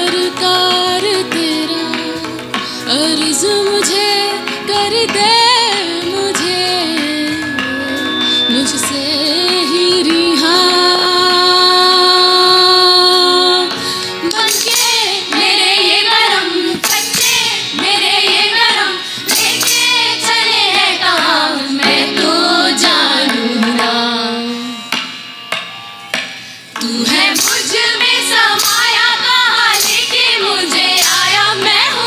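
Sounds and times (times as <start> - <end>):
harmonium: 0.0 - 32.0
tabla: 0.0 - 32.0
girls singing: 8.5 - 24.7, 26.8 - 32.0.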